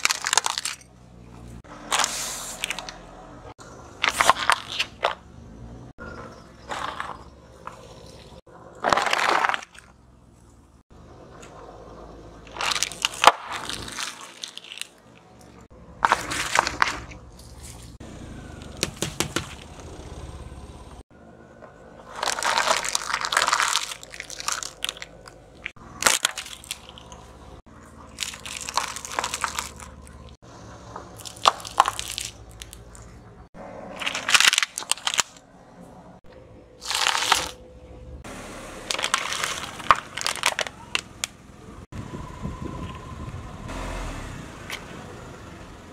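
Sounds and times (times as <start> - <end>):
tyre crushing plastic objects: 0.0 - 0.9, 8.8 - 9.9, 12.5 - 15.0, 16.0 - 17.6, 18.6 - 19.7, 22.1 - 27.2, 28.1 - 30.4, 31.2 - 33.0, 33.9 - 35.4, 36.8 - 37.6, 38.9 - 41.3.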